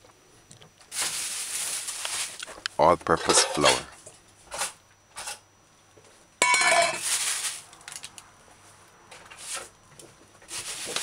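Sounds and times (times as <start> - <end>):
metal bowl ringing on countertop: 6.4 - 7.0.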